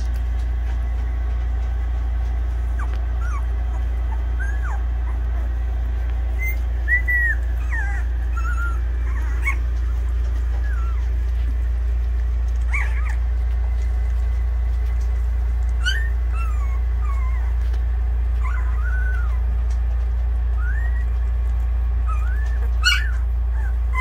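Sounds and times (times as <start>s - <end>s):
puppies whimpering and squeaking: 0.0s - 24.0s
steady low hum: 0.0s - 24.0s
puppies high-pitched cries: 2.5s - 11.6s, 12.5s - 13.5s, 15.7s - 19.8s, 20.4s - 24.0s.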